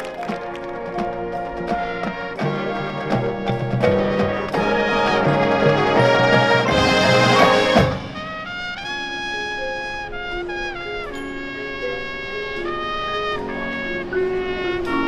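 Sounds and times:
marching band playing: 0.0 - 15.0.

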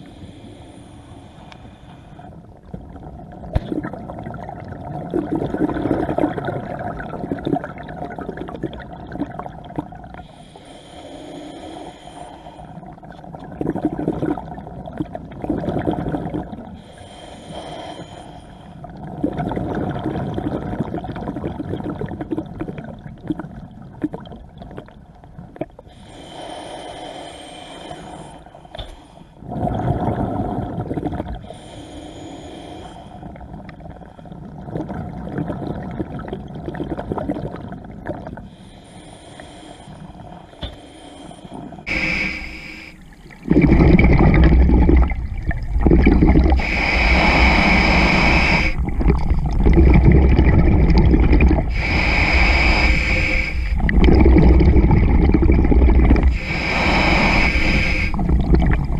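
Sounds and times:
exhaled air bubbling: 1.7 - 28.3, 29.4 - 58.9
scuba regulator hissing inhalations: 31.4 - 33.3, 38.5 - 49.4, 50.3 - 58.9.

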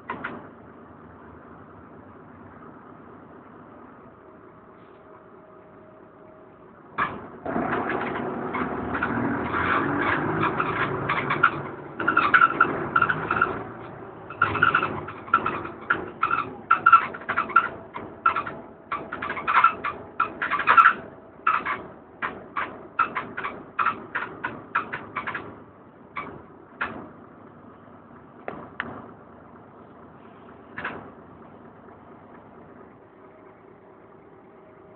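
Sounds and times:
sharp knocks and clatters: 0.0 - 0.5, 7.0 - 27.3, 28.4 - 29.2, 30.6 - 31.5
bus engine accelerating: 0.0 - 34.9
short repeated squeaks: 7.0 - 27.0.

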